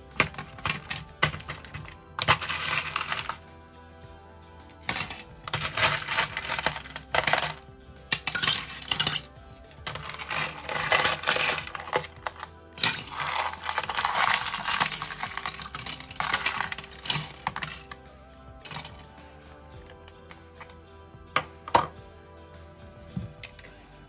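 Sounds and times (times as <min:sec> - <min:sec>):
metal tools clattering into water: 0:09.9 - 0:17.9.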